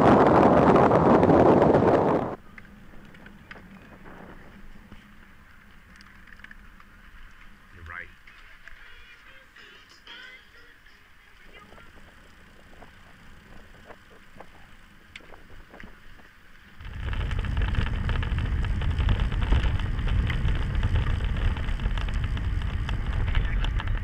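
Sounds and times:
wind noise on microphone: 0.0s - 5.3s, 11.4s - 24.0s
deep rumble: 0.0s - 8.0s, 16.7s - 24.0s
faint clicks: 2.4s - 3.9s, 4.9s - 7.6s.

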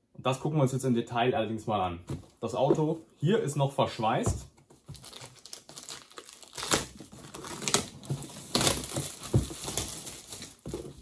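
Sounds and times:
plastic film crinkling: 4.8s - 11.0s
plastic film ripping: 5.0s - 10.6s.

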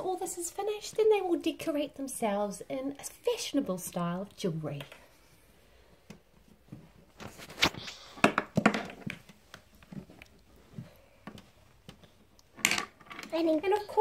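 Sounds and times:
soft taps and clicks of handling: 6.0s - 12.5s.

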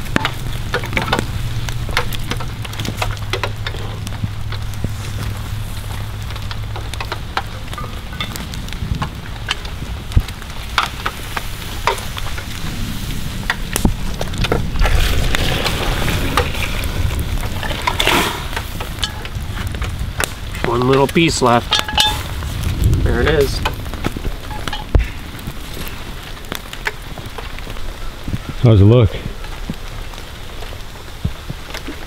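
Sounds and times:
campfire crackling and popping: 0.0s - 32.0s
steady hiss: 0.0s - 32.0s.

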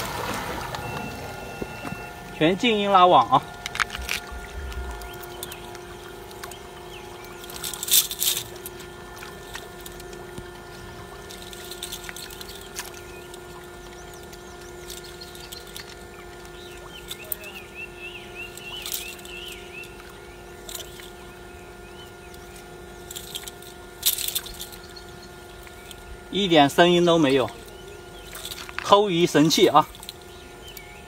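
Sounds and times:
steady hum: 0.0s - 31.0s
bird chirps: 12.2s - 22.7s.

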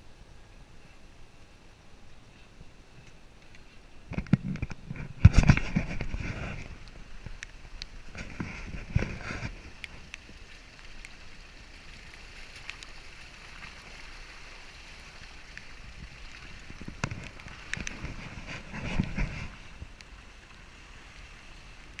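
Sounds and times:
grit clicking under tyres: 15.3s - 20.2s.

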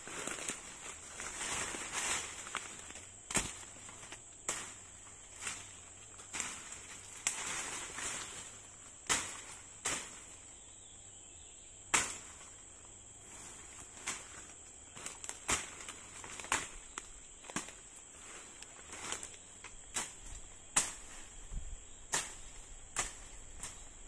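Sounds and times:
insect drone: 0.0s - 24.0s
rustling vegetation: 0.0s - 24.0s
sharp whacks on brush: 3.3s - 3.7s, 9.0s - 10.2s, 11.9s - 12.4s, 19.9s - 21.2s, 22.1s - 23.8s.

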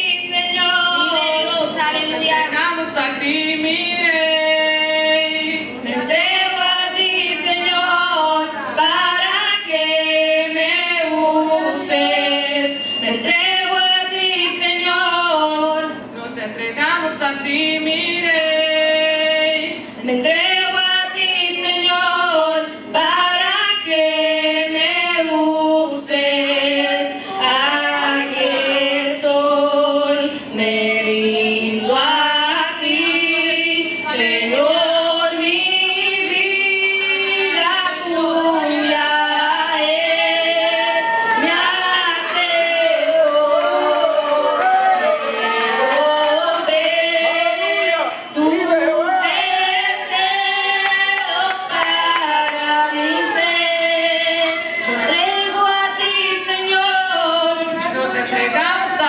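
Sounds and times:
women singing without instruments: 0.0s - 59.0s.

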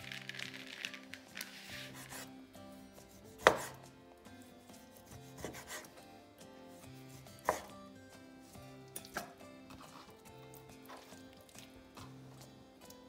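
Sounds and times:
soft background music: 0.0s - 13.0s
knife slicing raw meat: 1.4s - 2.3s, 3.0s - 3.9s, 4.7s - 6.0s, 6.8s - 7.8s, 8.4s - 12.2s.

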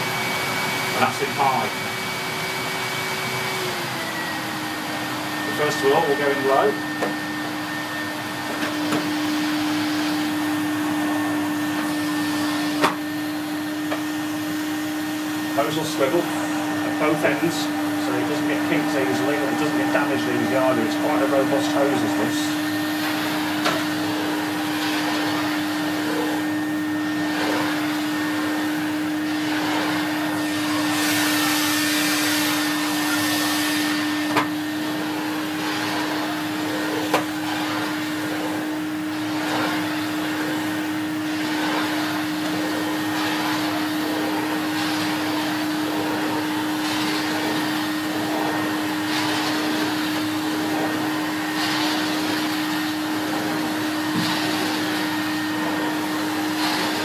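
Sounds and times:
vacuum cleaner on carpet: 0.0s - 57.0s.

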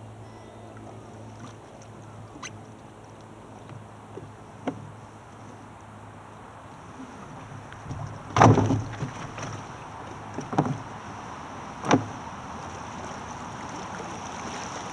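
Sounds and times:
hollow knocks on kayak hull: 7.8s - 9.6s.

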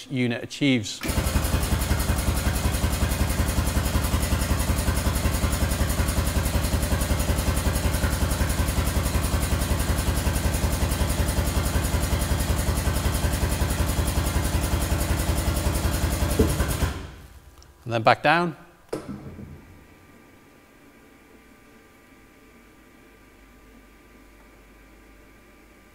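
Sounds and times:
air-powered pump pulsing: 1.0s - 17.3s.

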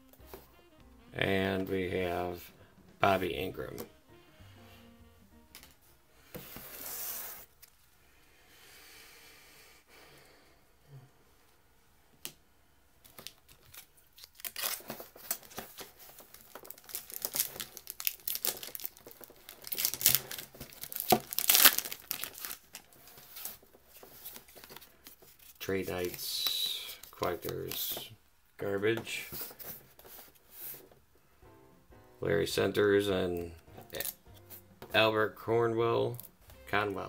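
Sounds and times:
foil wrapper crinkling and tearing: 13.1s - 27.9s.

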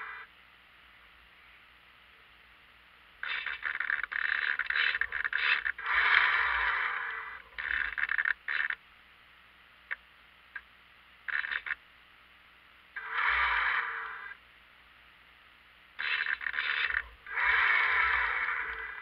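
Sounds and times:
servos whirring: 3.2s - 8.8s, 13.0s - 14.4s, 16.0s - 19.0s.

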